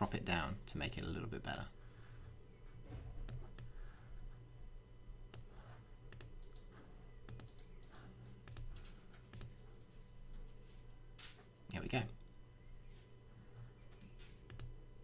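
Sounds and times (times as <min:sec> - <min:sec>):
low steady hum: 0:00.0 - 0:15.0
computer mouse clicks: 0:06.1 - 0:10.6, 0:13.9 - 0:14.8.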